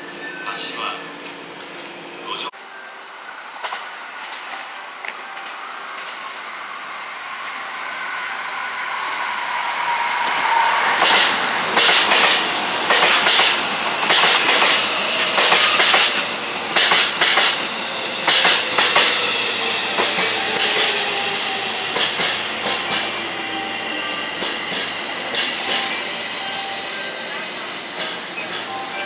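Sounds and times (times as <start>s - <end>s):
train wheels clacking over rail joints: 10.3s - 19.2s, 21.9s - 23.1s, 24.4s - 25.9s, 28.0s - 28.7s.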